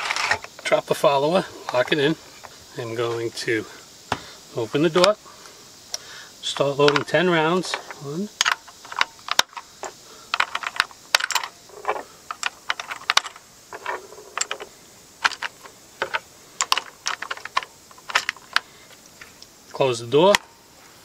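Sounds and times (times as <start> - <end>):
cartridges clicking into a magazine: 6.9 - 9.7.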